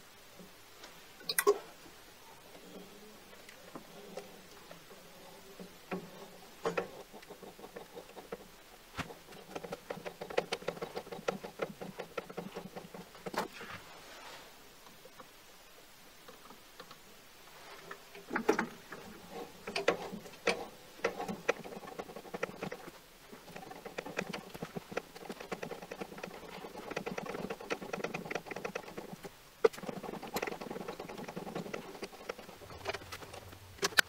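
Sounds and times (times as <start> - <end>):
tap scraping and creaking in metal: 5.6 - 8.4, 17.8 - 22.9.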